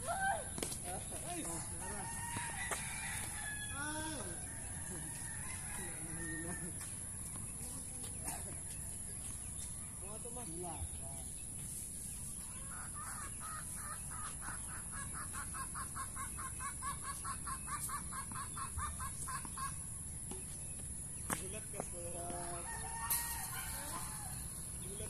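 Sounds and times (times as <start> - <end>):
rooster crowing: 1.8 - 6.8, 22.5 - 24.8
chickens clucking: 11.4 - 25.0.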